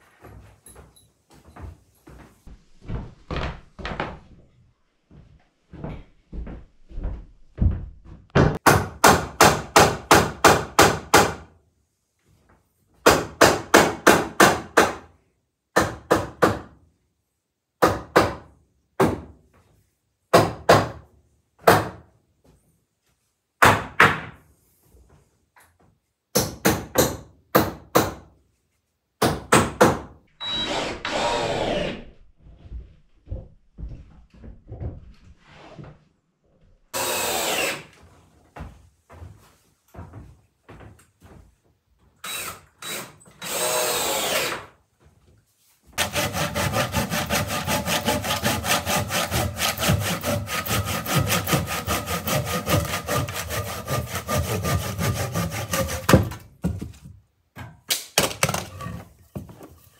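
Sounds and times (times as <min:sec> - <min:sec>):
cordless drill running: 0:30.4 - 0:32.0, 0:37.0 - 0:37.9, 0:42.3 - 0:44.6.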